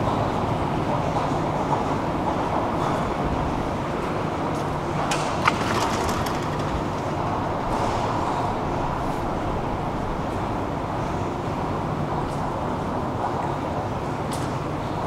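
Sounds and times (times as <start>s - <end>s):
escalator rumbling: 0.0s - 10.9s.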